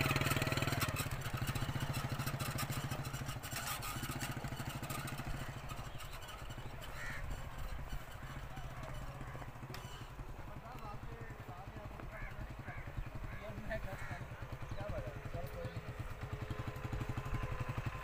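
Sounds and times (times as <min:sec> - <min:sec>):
small motorcycle engine running: 0:00.0 - 0:18.0.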